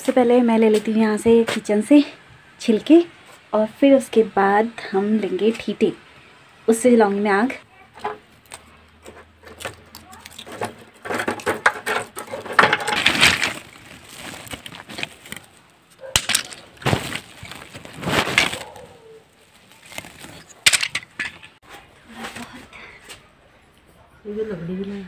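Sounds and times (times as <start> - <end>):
sticks crackling and clattering: 7.9 - 22.6
stick snapping: 16.0 - 17.3.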